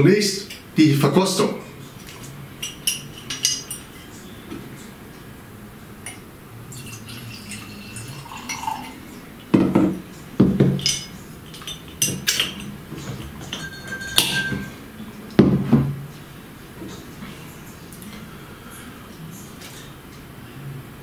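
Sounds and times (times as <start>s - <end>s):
glass bottles clinking on table: 2.6s - 4.1s, 6.8s - 9.0s, 9.6s - 14.8s
liquid pouring into glass: 6.7s - 9.1s.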